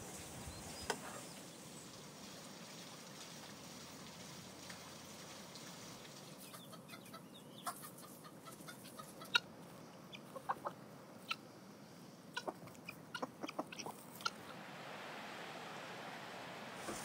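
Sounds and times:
chickens clucking: 0:06.2 - 0:14.7.

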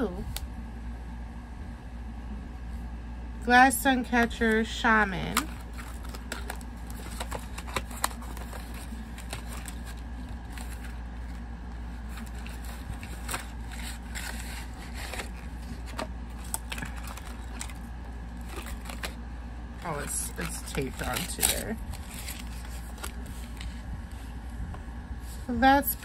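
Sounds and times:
low hum: 0:00.0 - 0:26.0
packaging crinkling: 0:05.3 - 0:24.3.

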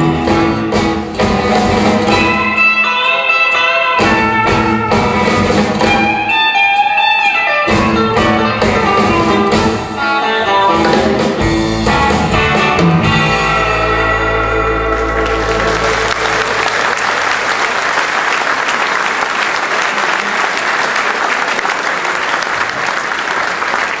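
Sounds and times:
electric guitar band chord ringing: 0:02.1 - 0:16.6
audience applause: 0:14.8 - 0:24.0.

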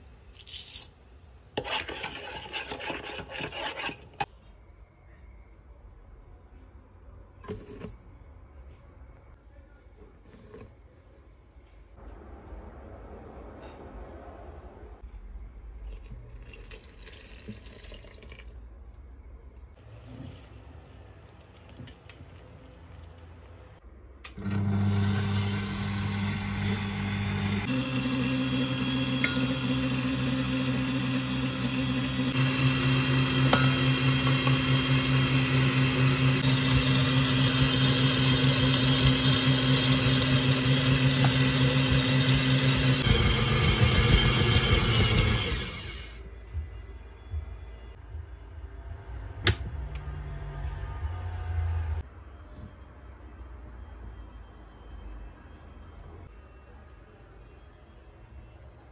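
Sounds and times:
liquid pouring into bowl: 0:16.0 - 0:18.6
stand mixer humming: 0:24.4 - 0:46.2.

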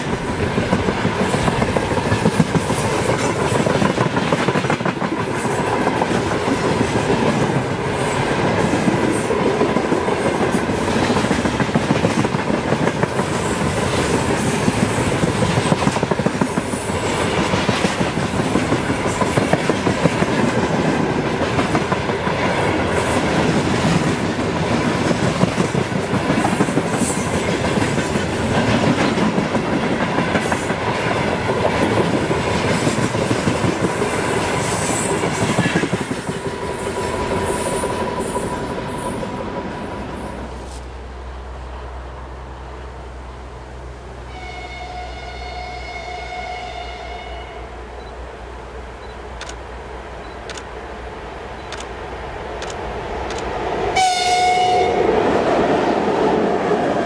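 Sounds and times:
train wheels clattering on rails: 0:00.0 - 0:39.7.

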